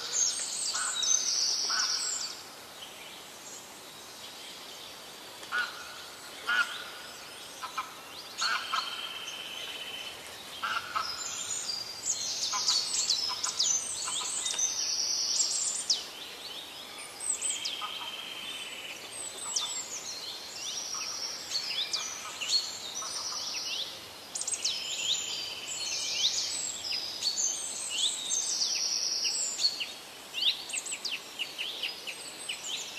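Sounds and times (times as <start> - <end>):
small birds chirping: 0.0 - 32.9.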